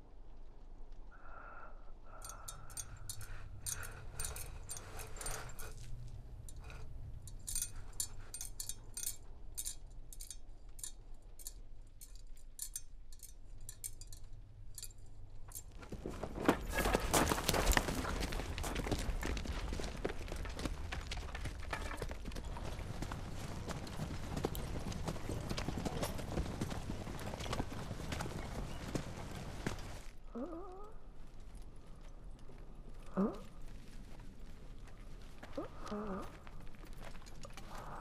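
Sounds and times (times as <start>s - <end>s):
metallic clinking and jingling: 2.1s - 30.1s.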